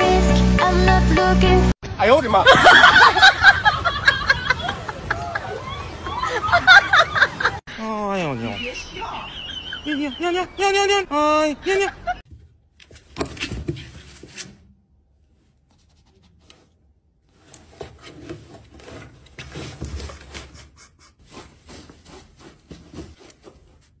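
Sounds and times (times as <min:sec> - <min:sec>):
fleece blanket rustling and scraping: 0:15.3 - 0:24.0.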